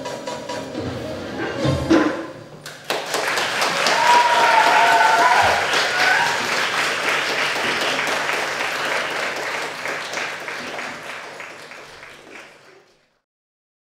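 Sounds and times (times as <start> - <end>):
audience applauding: 2.6 - 13.2.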